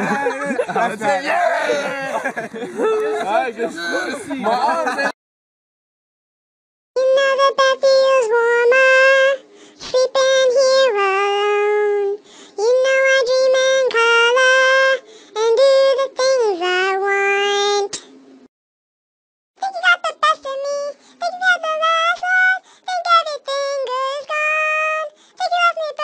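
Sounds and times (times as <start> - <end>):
pitched-up cartoon voice singing: 7.0 - 17.9, 19.6 - 26.0.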